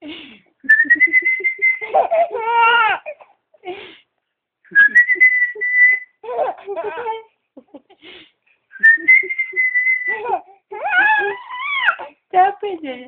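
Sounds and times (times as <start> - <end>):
baby laughing and cooing: 1.6 - 3.4, 6.2 - 8.0, 10.0 - 12.2
person whistling long notes: 4.7 - 6.2, 8.8 - 10.1.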